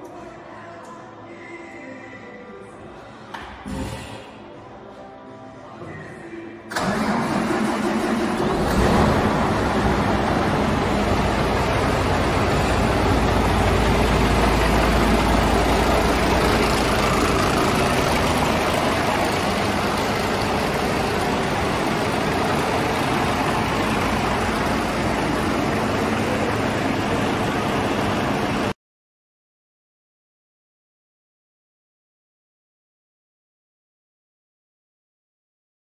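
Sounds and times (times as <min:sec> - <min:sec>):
diesel engine idling: 0:06.8 - 0:28.7.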